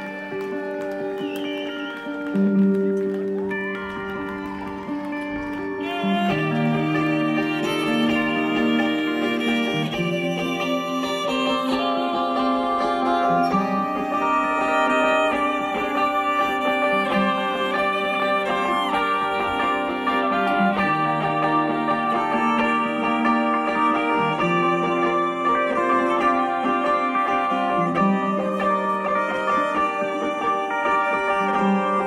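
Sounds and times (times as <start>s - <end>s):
fiddle: 0.0s - 32.0s
plucked strings: 0.0s - 32.0s.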